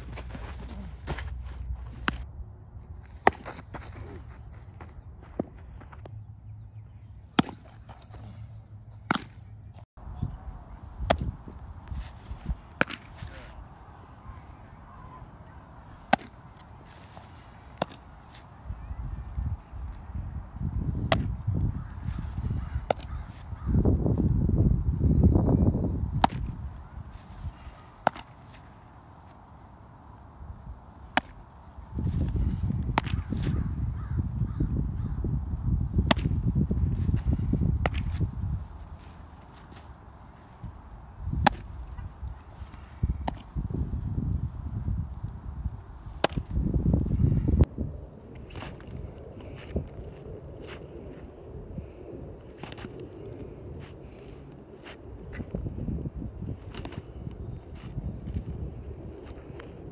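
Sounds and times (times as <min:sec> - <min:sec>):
baseball smacking into mitt: 0:07.4 - 0:08.2, 0:09.0 - 0:09.4, 0:11.0 - 0:11.3, 0:12.0 - 0:13.3, 0:16.0 - 0:18.5, 0:21.0 - 0:21.4, 0:22.8 - 0:23.2, 0:26.2 - 0:26.6, 0:28.0 - 0:28.6, 0:31.1 - 0:31.4, 0:32.0 - 0:33.6, 0:36.0 - 0:36.4, 0:37.8 - 0:38.2, 0:41.3 - 0:41.9, 0:43.2 - 0:43.5, 0:46.2 - 0:46.6, 0:56.7 - 0:57.0
wind rumble on microphone: 0:10.0 - 0:12.8, 0:18.4 - 0:28.0, 0:31.6 - 0:59.9.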